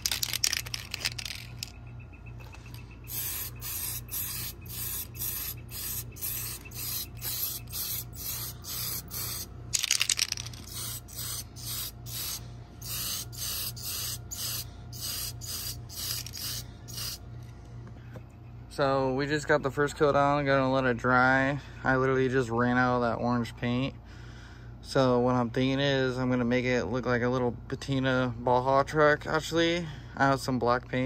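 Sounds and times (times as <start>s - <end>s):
spray paint can hissing: 0.0s - 1.7s, 3.1s - 17.2s.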